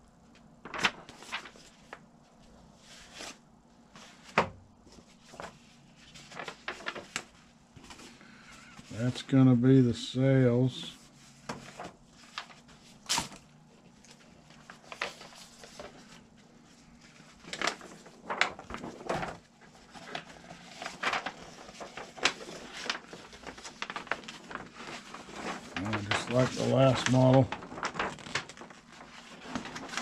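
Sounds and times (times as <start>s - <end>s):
paper sheets rustling: 0.6s - 30.0s.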